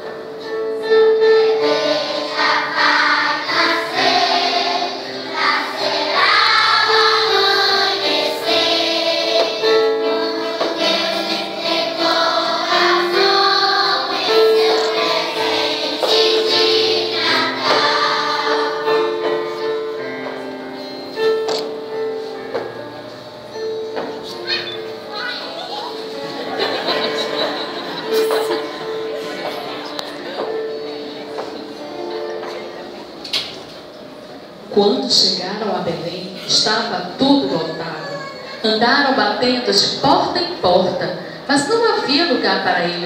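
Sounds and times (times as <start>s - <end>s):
children's choir singing: 0.1s - 21.4s, 26.0s - 33.2s.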